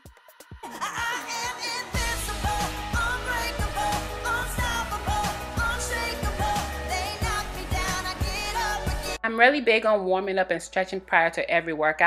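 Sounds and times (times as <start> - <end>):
pop music with beat: 0.0 - 9.2
bass and kick drum: 2.0 - 9.2.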